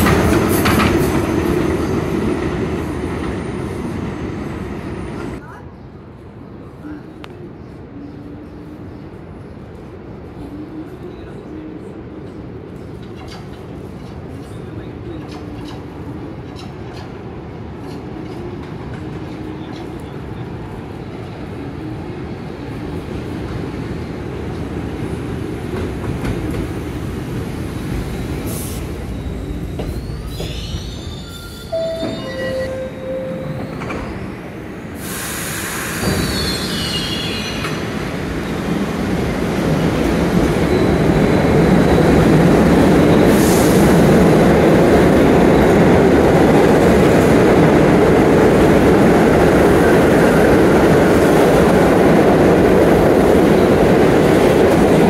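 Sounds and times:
subway train wheels rumbling: 0.0s - 55.0s
high wheel squeals: 28.7s - 37.8s.

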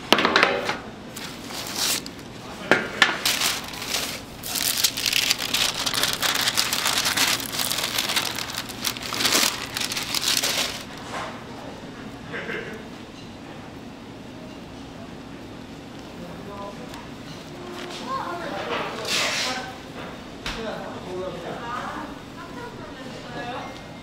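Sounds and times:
parchment paper rustling: 1.1s - 2.4s, 3.0s - 11.3s.

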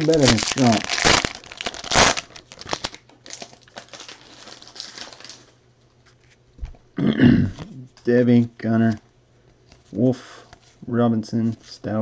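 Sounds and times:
cards and wrapper crinkling: 0.0s - 5.5s.

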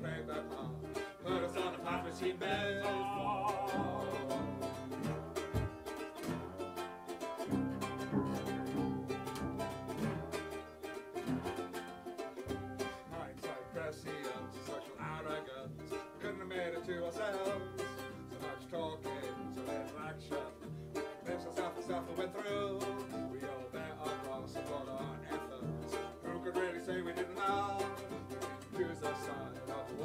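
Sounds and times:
ukulele strummed: 0.0s - 30.0s
cello playing low notes: 1.3s - 11.7s.

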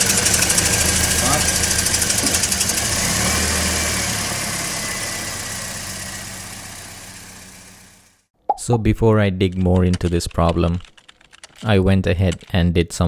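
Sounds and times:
car engine idling: 0.0s - 8.3s.

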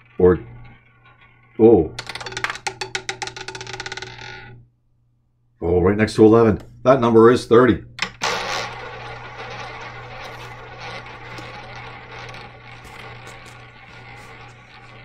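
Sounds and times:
roulette ball whirring: 0.0s - 4.6s, 7.9s - 15.0s.

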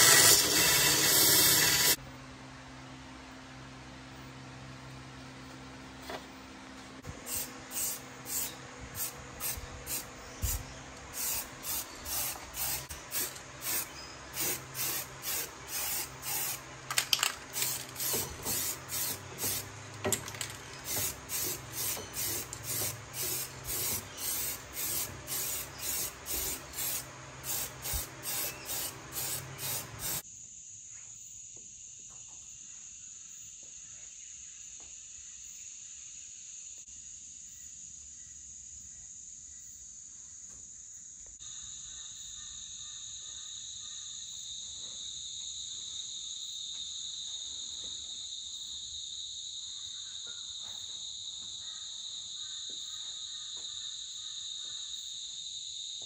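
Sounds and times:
aerosol spray can bursts: 0.0s - 2.0s, 7.2s - 10.6s, 11.2s - 16.6s, 17.4s - 19.7s, 20.7s - 30.2s.

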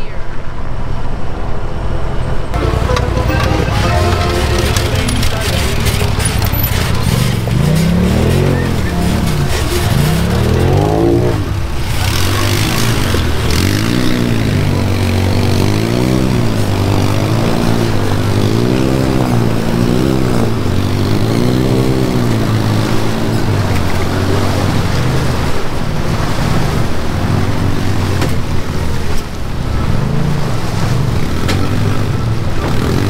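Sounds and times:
vehicle engine revving: 5.8s - 25.4s.

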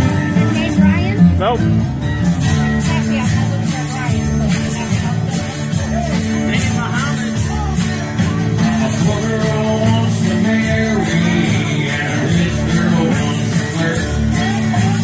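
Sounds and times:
acoustic guitar strumming: 0.0s - 15.0s
man singing into microphone: 8.2s - 15.0s.

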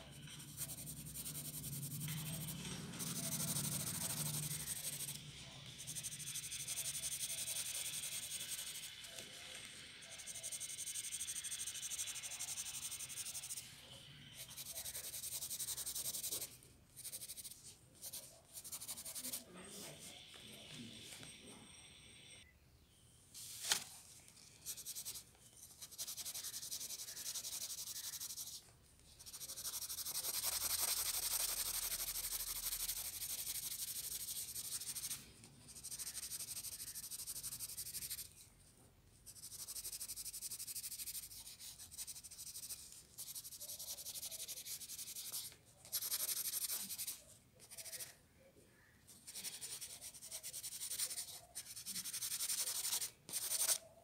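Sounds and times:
pencil scratching on paper: 0.0s - 20.2s, 24.6s - 28.6s, 29.2s - 38.4s, 39.3s - 48.2s, 49.1s - 54.0s.

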